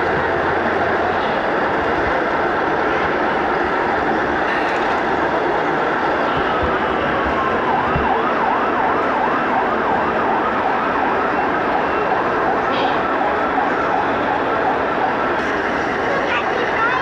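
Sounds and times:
steady background din: 0:00.0 - 0:17.0
electronic yelp siren: 0:05.9 - 0:17.0.

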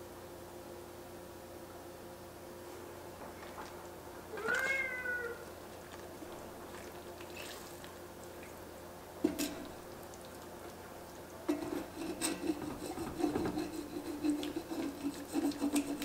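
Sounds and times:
cat meowing: 0:04.3 - 0:05.5
wooden spatula scraping pot: 0:11.5 - 0:16.0.

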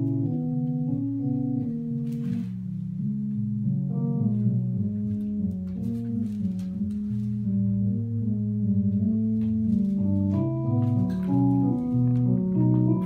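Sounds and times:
organ-like keyboard notes: 0:00.0 - 0:13.0.

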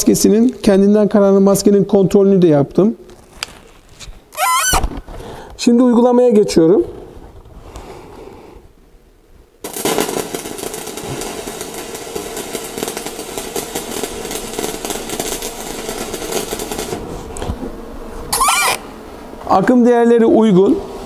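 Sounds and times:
arc welding crackling and sizzling: 0:09.6 - 0:20.8.

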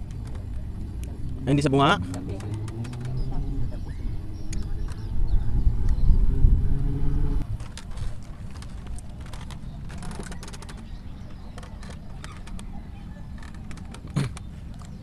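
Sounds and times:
wind rumble on microphone: 0:00.0 - 0:15.0
sharp clicks and ticks: 0:02.0 - 0:03.2.

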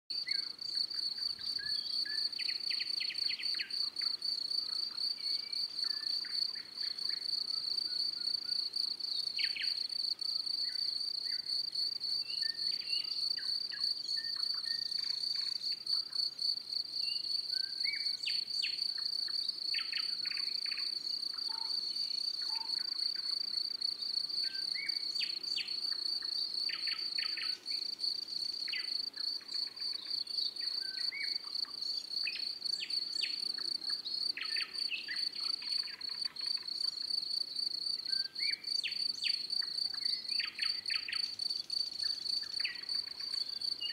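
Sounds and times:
bird chirps: 0:42.0 - 0:43.9.

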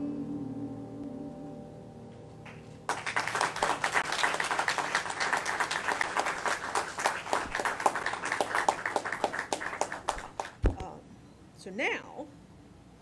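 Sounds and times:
piano notes: 0:00.0 - 0:04.1
audience applauding: 0:02.5 - 0:10.7.

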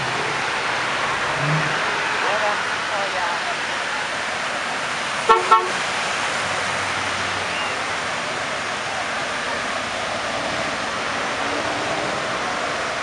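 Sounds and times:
cars rolling past: 0:00.0 - 0:13.0
car horn toots: 0:05.2 - 0:05.9.

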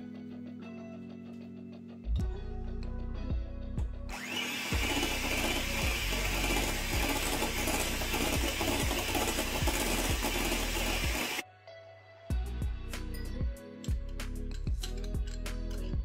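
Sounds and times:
electric hand mixer whisking: 0:04.1 - 0:11.4.

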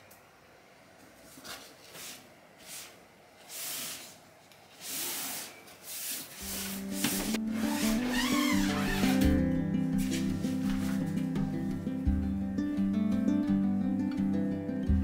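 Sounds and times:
fabric box rubbing and rustling: 0:04.8 - 0:09.2, 0:10.0 - 0:11.1
background music: 0:06.4 - 0:15.0.

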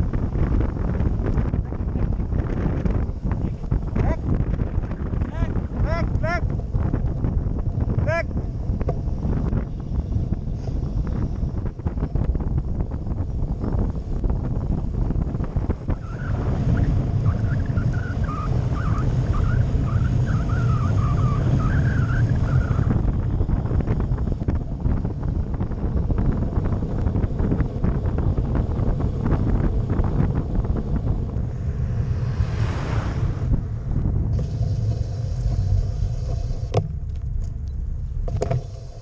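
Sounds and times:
tyre and road noise: 0:00.0 - 0:39.0
wind buffeting microphone: 0:00.0 - 0:39.0
car passing swish: 0:31.3 - 0:36.0.

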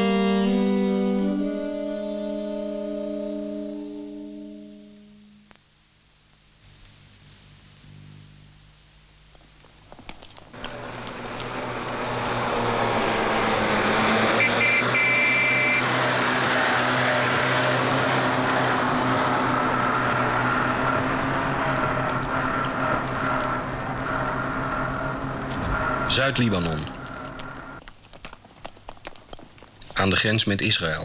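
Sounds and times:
road noise: 0:09.8 - 0:30.2
van engine running: 0:10.4 - 0:27.8.

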